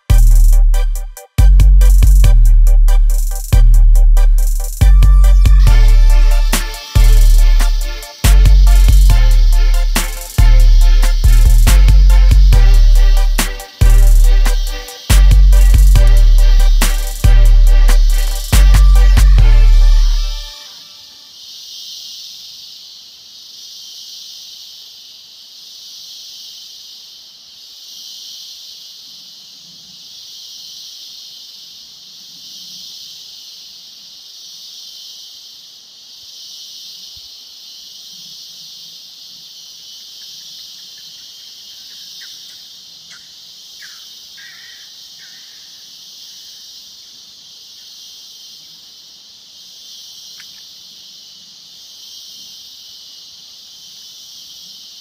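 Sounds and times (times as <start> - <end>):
insects buzzing: 0.0 - 55.0
short high chirps: 1.8 - 20.6.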